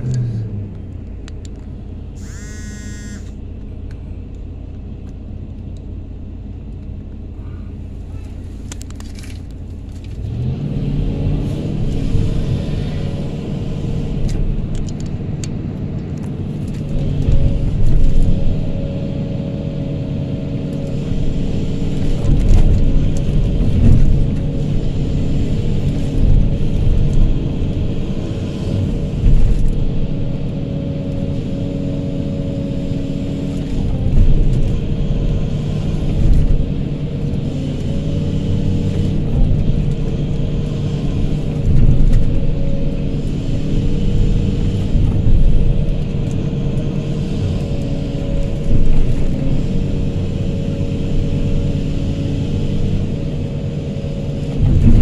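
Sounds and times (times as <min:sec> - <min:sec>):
excavator diesel engine drone: 0:00.0 - 0:55.0
high engine whine: 0:00.0 - 0:55.0.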